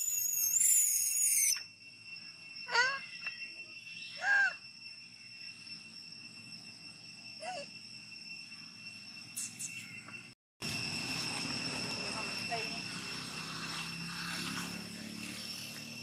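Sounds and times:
high insect drone: 0.0 - 16.0.

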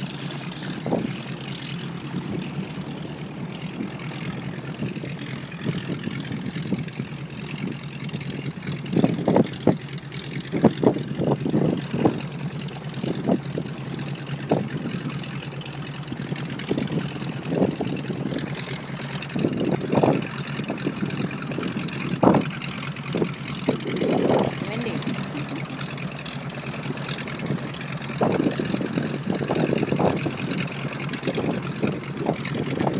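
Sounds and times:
radial engine idling: 0.0 - 32.9.

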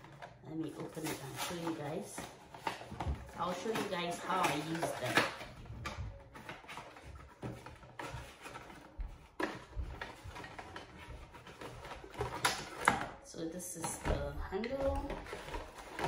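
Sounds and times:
cardboard box tearing and rustling: 0.9 - 5.5.

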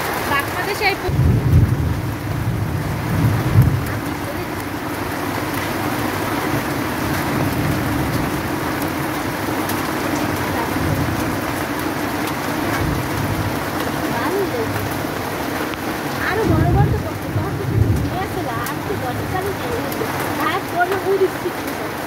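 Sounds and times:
heavy rain and hail falling: 0.0 - 22.0
low rumble: 1.1 - 5.7, 16.4 - 19.5.

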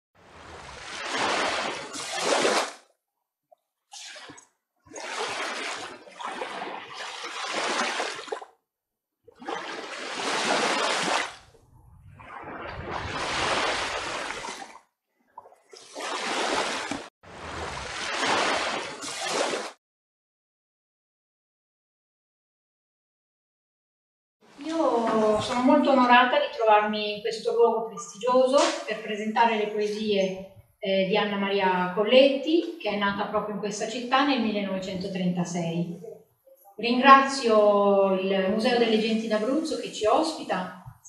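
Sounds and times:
waves washing onto beach: 0.3 - 2.8, 9.6 - 11.4, 12.2 - 14.8, 15.8 - 19.8.

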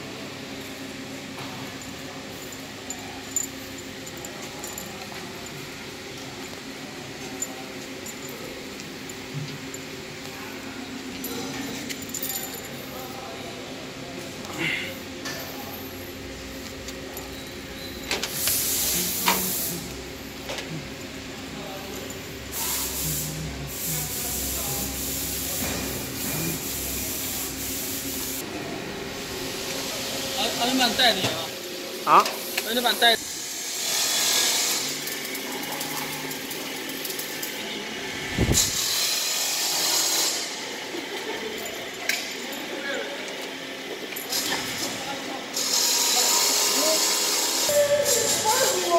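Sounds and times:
machinery hiss: 18.2 - 20.1, 22.4 - 28.4
plasma cutter torch hissing: 18.3 - 19.9.

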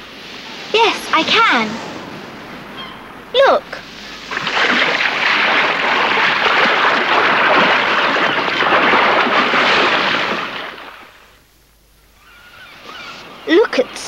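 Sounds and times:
water splashing from swimming: 3.4 - 11.4.

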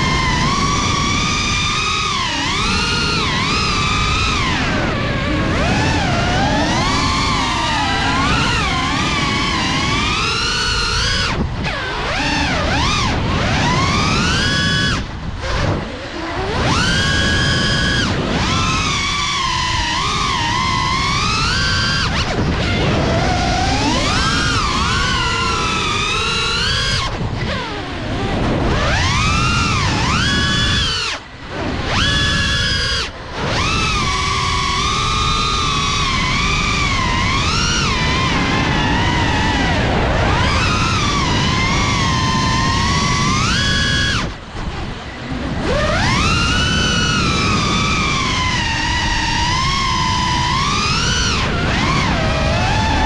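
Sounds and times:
quadcopter motors whining: 0.0 - 53.0
wind rumble on microphone: 0.0 - 53.0.

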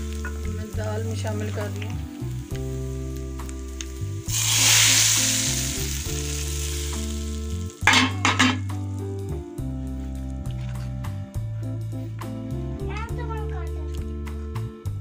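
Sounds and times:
hot oil hissing in pot: 0.0 - 9.7.

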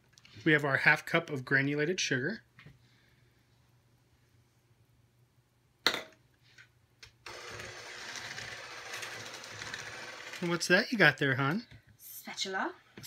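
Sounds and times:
electric hand mixer running: 7.3 - 10.8.

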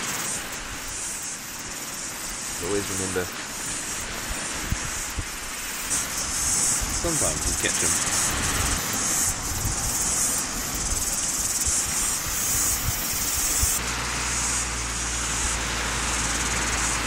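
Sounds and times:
cicadas buzzing: 0.0 - 17.0
low steady rumble: 4.0 - 17.0.

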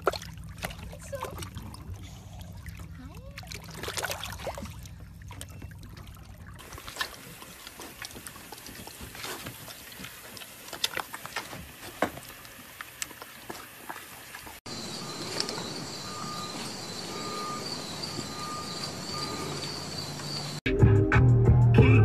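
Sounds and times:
low hum: 0.0 - 8.9, 14.7 - 20.6
water sloshing: 0.0 - 20.6
pig smacking and chewing: 4.8 - 15.7.

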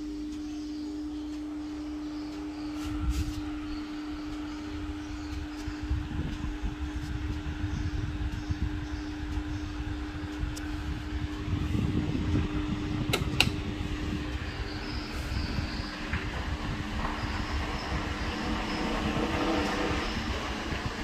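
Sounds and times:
fan motor hum: 0.0 - 21.0
airflow buffeting microphone: 1.4 - 21.0
sharp clicks: 13.0 - 13.7.

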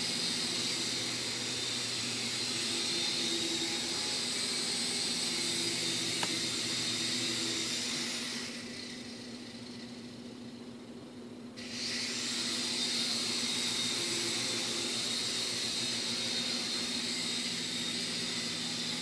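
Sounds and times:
toy helicopter rotors whirring: 0.0 - 10.6, 11.6 - 19.0.

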